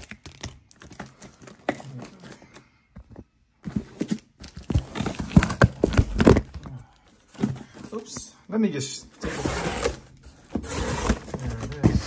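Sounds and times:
cardboard scraping and knocking: 9.2 - 12.0.

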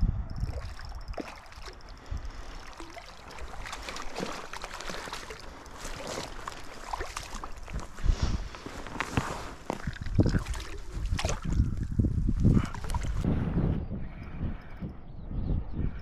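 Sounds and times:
fish splashing in shallow water: 0.3 - 13.2
crackling of dry grass and reeds: 0.5 - 13.2.

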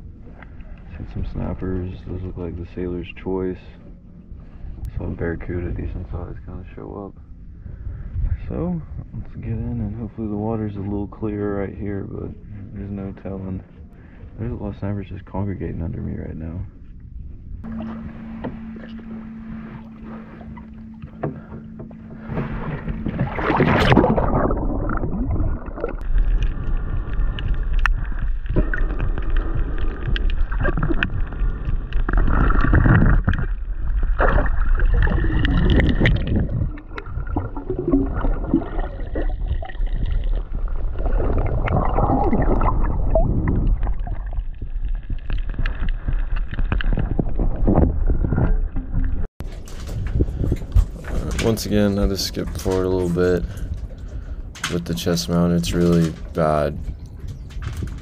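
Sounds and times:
underwater rushing and bubbling: 0.0 - 10.0, 16.8 - 58.0
low engine hum: 15.1 - 32.2.

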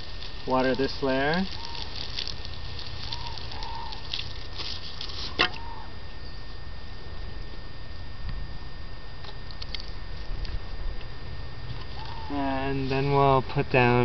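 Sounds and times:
hose water spattering: 0.0 - 5.6.

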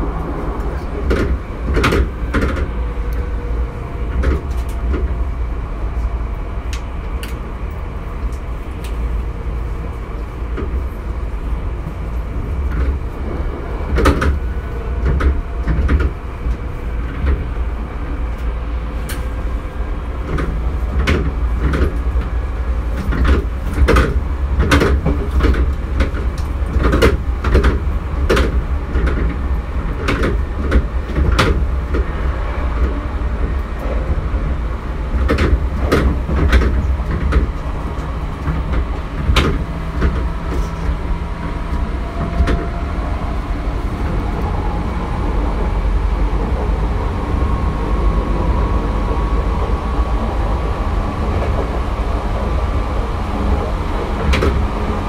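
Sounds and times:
train wheels rumbling on rails: 0.0 - 55.0
sharp clacks and rattles: 0.6 - 3.3, 20.2 - 42.9.

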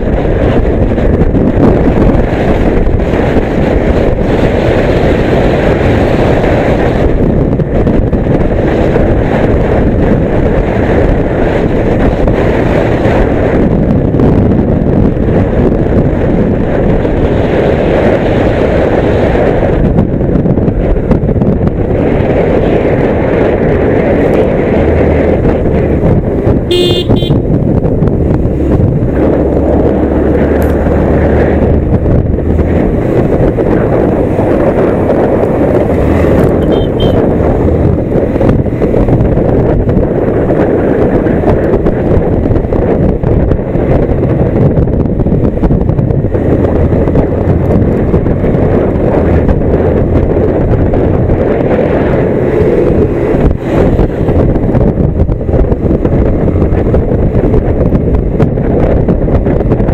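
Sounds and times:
motorcycle engine: 0.0 - 59.9
wind rushing over microphone: 0.0 - 59.9
horn toot: 26.7 - 27.4, 36.6 - 37.3.

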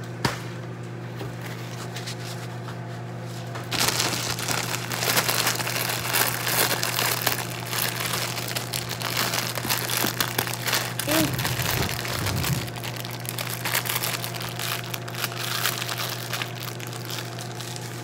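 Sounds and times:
steady low hum: 1.0 - 18.0
plastic wrapper crinkling: 3.7 - 18.0.

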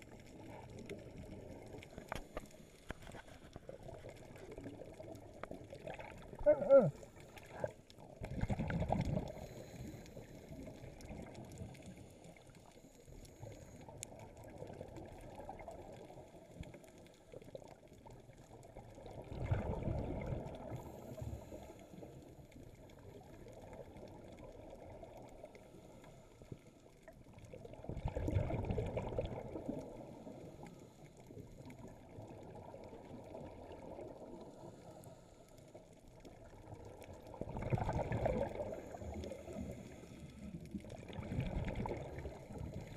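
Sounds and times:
muffled underwater ambience: 0.0 - 42.9
diver's exhaled bubbles: 3.9 - 9.7, 19.0 - 21.1, 27.8 - 30.4, 37.2 - 42.9.

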